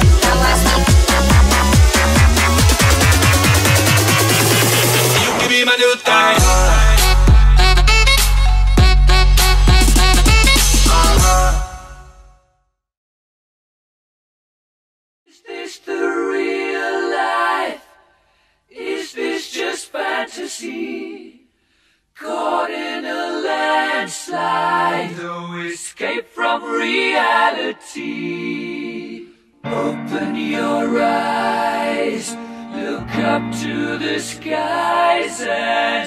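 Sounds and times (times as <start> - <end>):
group singing a cappella: 0.0 - 7.1, 15.3 - 21.6, 22.2 - 36.0.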